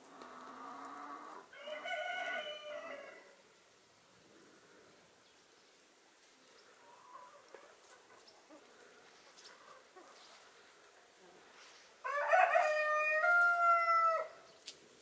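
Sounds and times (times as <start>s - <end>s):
rooster crowing: 1.5s - 3.4s, 12.0s - 14.4s.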